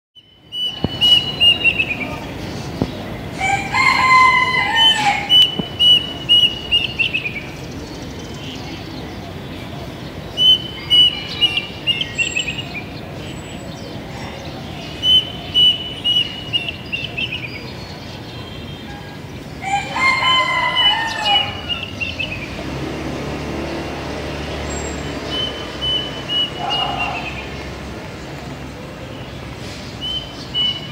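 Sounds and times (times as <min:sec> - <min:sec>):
cuckoo singing: 0:00.2 - 0:07.6, 0:10.2 - 0:12.9, 0:14.8 - 0:17.7, 0:25.2 - 0:27.5, 0:30.0 - 0:30.9
coarse bird call: 0:00.2 - 0:13.0, 0:13.7 - 0:17.7, 0:24.6 - 0:27.9, 0:28.9 - 0:30.9.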